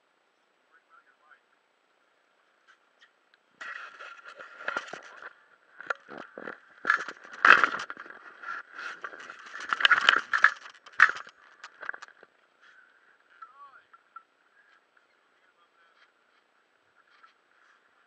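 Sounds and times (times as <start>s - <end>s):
faint steady whine: 0.0s - 18.0s
handling scraping and rubbing: 2.6s - 13.5s.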